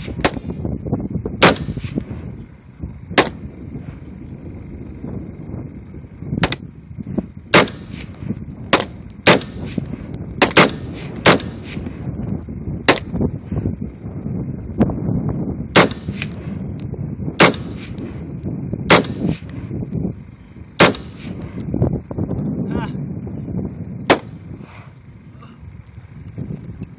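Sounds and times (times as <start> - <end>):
rifle single shots: 1.4 - 2.2, 7.5 - 11.9, 15.8 - 16.5, 17.4 - 18.1, 18.9 - 19.5, 20.8 - 21.5.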